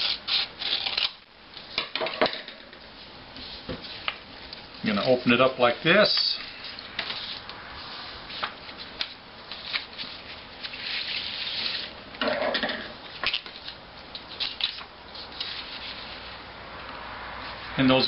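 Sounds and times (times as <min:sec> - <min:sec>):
paper rustling and crinkling: 0:08.3 - 0:12.0, 0:13.2 - 0:16.4.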